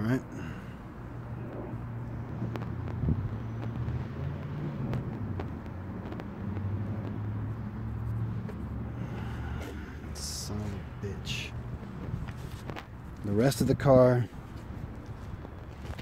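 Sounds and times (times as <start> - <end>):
car engine idling: 5.1 - 15.6.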